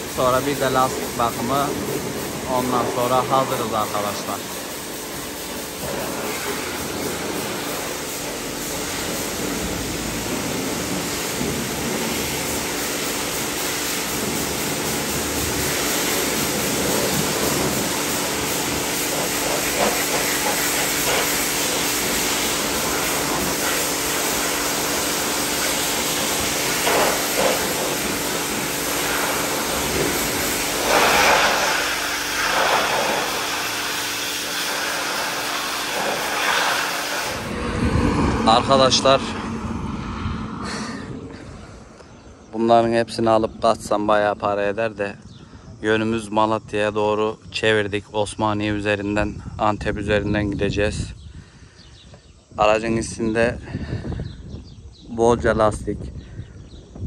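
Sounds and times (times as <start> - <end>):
pressure washer spraying water: 0.0 - 37.7
constant low hum: 0.0 - 57.0.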